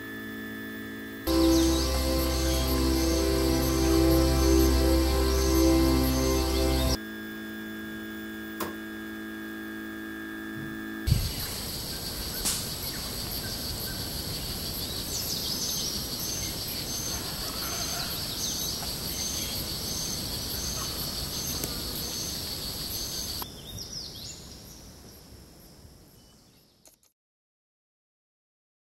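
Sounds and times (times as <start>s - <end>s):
insect chorus buzzing: 1.3s - 7.0s, 11.1s - 23.4s
steady held tones: 1.3s - 7.0s.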